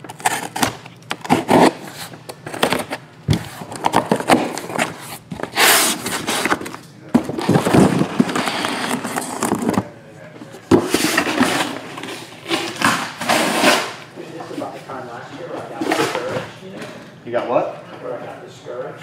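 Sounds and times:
cardboard rustling and scraping: 0.0s - 14.7s.

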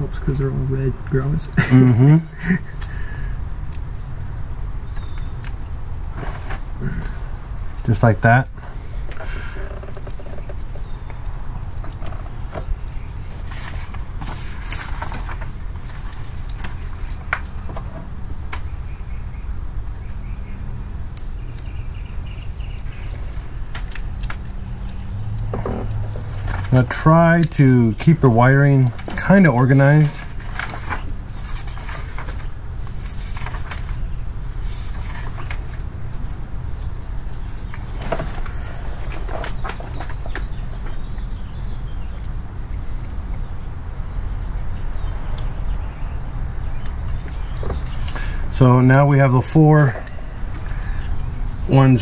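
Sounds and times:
clicks and rustles of wiring: 9.1s - 18.7s, 22.7s - 41.4s.

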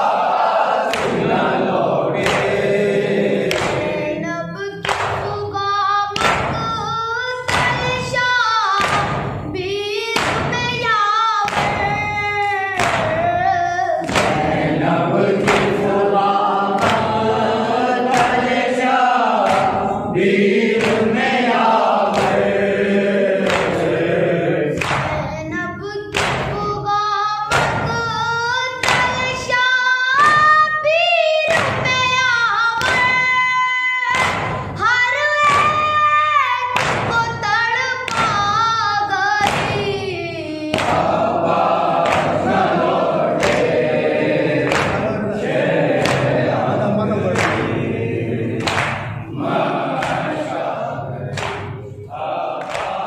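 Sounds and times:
voices joining in chant: 0.0s - 4.4s, 13.9s - 25.0s, 40.7s - 53.0s
hands beating on chests: 2.2s - 2.7s, 3.4s - 4.0s, 8.8s - 9.4s, 10.2s - 10.7s, 11.5s - 12.1s, 14.0s - 14.8s, 19.4s - 21.2s, 24.8s - 25.2s, 40.7s - 45.2s, 52.6s - 53.0s
boy chanting into a microphone: 3.5s - 20.2s, 24.6s - 41.4s.

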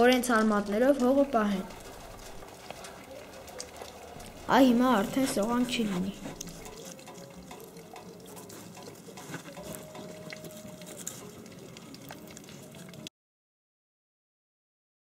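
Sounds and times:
plastic toys scraping in soil: 1.7s - 7.0s.

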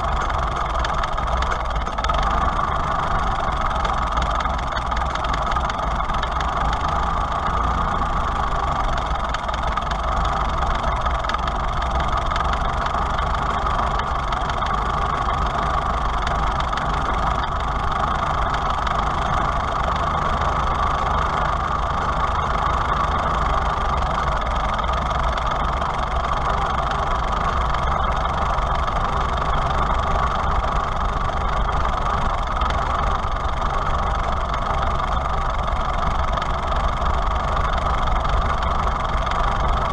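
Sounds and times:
tractor engine idling: 0.0s - 39.9s.

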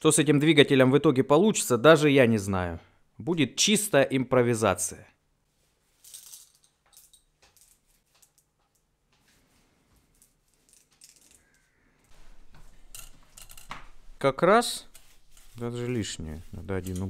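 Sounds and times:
steel balls clicking together: 10.2s - 11.7s, 12.8s - 13.8s.

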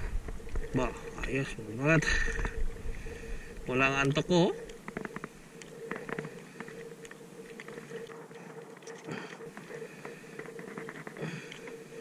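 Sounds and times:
faint steady hum: 0.0s - 12.0s
clicks and taps handling fish: 3.5s - 12.0s.

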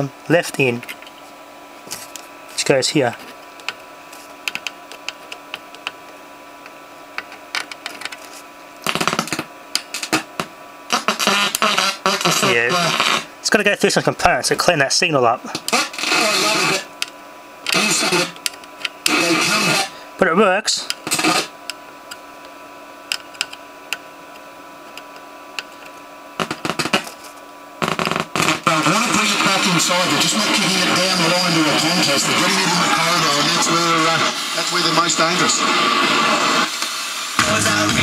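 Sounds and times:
amplifier hum: 0.0s - 38.0s
speaker clicks and pops: 4.4s - 8.2s, 8.8s - 10.5s, 23.1s - 23.6s, 24.9s - 27.1s
sharp clicks and crackles: 4.5s - 6.0s, 23.1s - 24.0s
speaker crackling: 8.8s - 17.1s, 25.0s - 38.0s.

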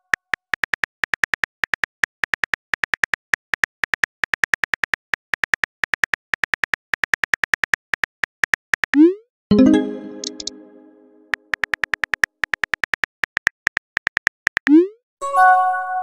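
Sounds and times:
phone keyboard clicks: 10.2s - 10.5s, 11.4s - 14.7s.

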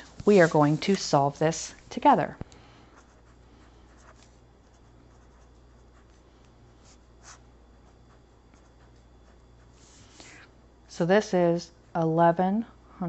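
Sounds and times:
low steady hum: 0.0s - 13.0s
pen scratching on paper: 3.0s - 6.2s.

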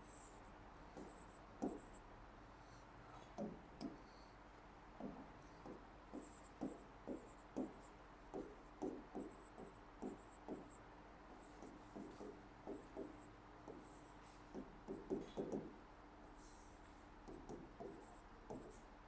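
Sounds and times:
pen scratching on board: 1.0s - 1.9s, 5.0s - 10.8s, 11.4s - 15.7s, 16.3s - 18.8s.

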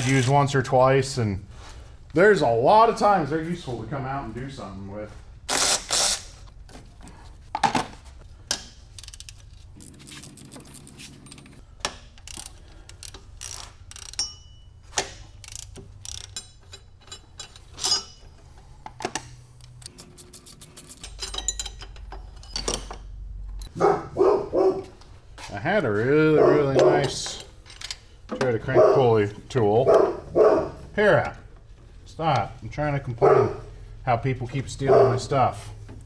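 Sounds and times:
ratchet clicking: 5.5s - 6.4s, 8.9s - 9.4s, 12.2s - 18.1s
metal tools clanking: 9.0s - 23.8s, 26.4s - 31.6s.

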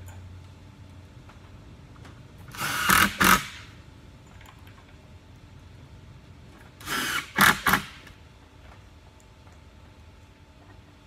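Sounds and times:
cordless drill driving screws: 2.5s - 3.6s, 6.8s - 8.0s.

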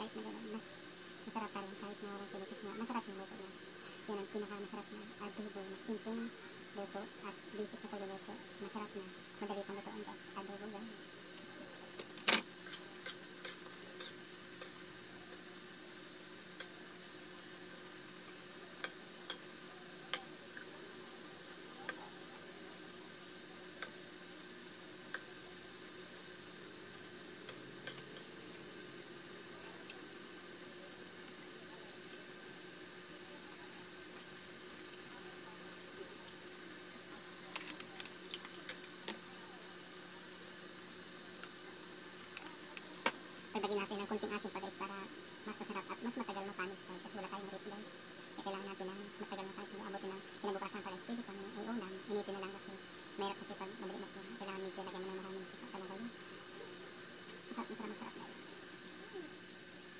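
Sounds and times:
sauce sizzling: 0.1s - 59.9s
spoon scraping metal wok: 12.6s - 14.8s.

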